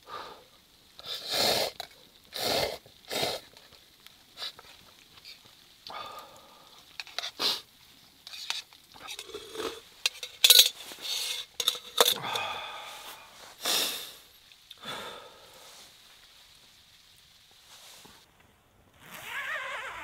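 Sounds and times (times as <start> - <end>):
metal cup clinking and scraping: 7.0 - 7.3, 8.2 - 12.2
jacket rustling: 9.0 - 13.6.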